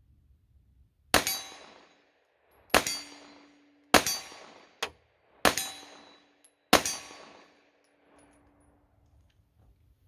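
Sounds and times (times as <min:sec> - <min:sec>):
pistol shots echoing: 0:01.1 - 0:07.8.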